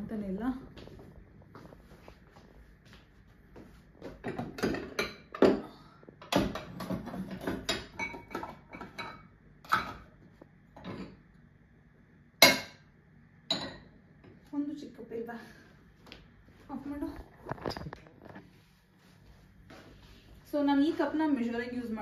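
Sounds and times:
crockery clinking and clattering: 0:04.2 - 0:05.6, 0:06.2 - 0:10.1.

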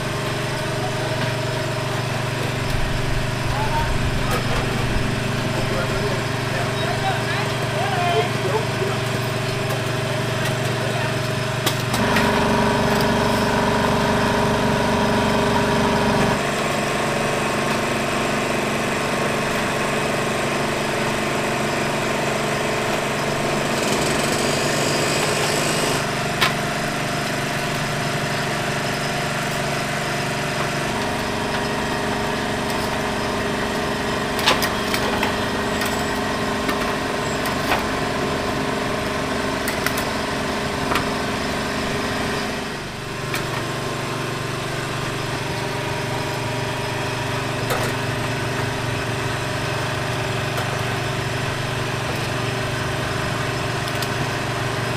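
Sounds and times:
motor humming: 0:00.0 - 0:54.9.

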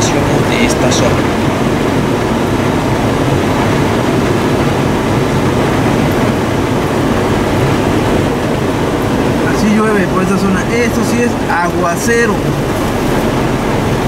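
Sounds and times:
heavy rain on a car: 0:00.0 - 0:14.0
tyre and engine noise: 0:00.0 - 0:14.0.

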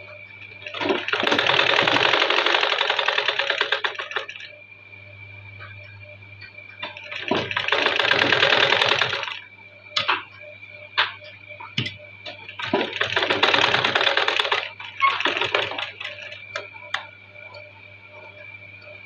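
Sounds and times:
sewing machine needle rattle: 0:00.7 - 0:04.5, 0:06.8 - 0:09.4, 0:12.3 - 0:16.6.

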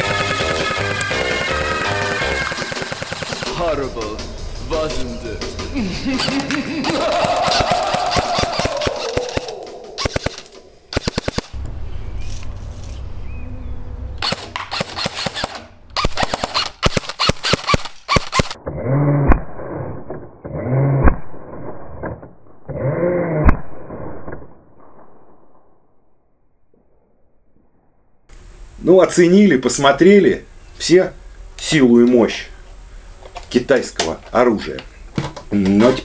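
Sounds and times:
muffled shots with sharp snap: 0:00.0 - 0:03.6, 0:06.2 - 0:11.6, 0:14.2 - 0:18.6
airsoft rifle bursts: 0:00.0 - 0:03.7, 0:06.2 - 0:11.6, 0:14.2 - 0:18.6.

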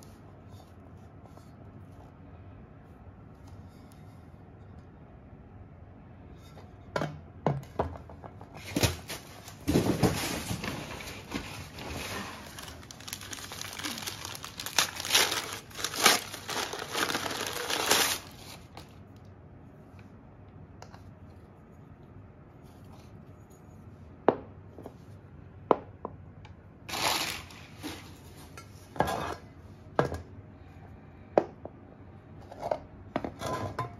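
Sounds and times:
packing paper crumpling and tearing: 0:09.0 - 0:18.9, 0:26.9 - 0:28.1.

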